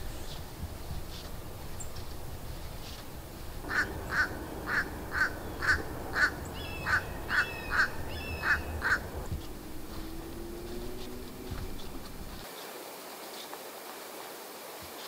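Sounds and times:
crow cawing: 3.6 - 9.3.

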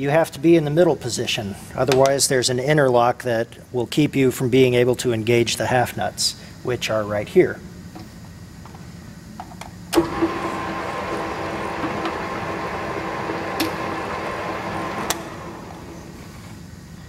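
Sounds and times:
lathe carriage control clicks: 9.9 - 16.0
metal lathe humming with a whine: 10.0 - 17.0.

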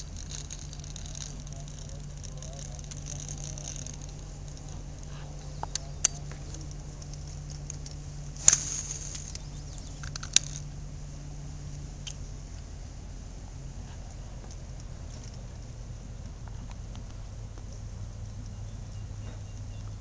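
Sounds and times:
brief rustle: 0.0 - 10.6
steady low hum: 0.0 - 20.0.

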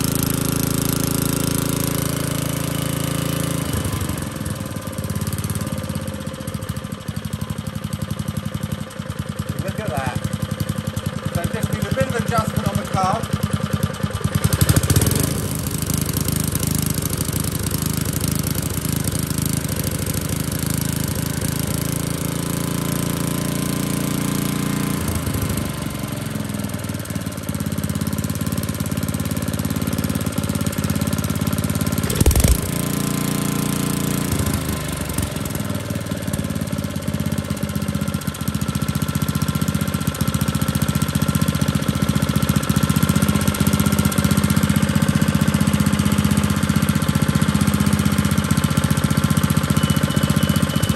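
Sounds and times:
four-stroke engine running: 0.0 - 50.9
sharp knock: 32.0 - 32.8.

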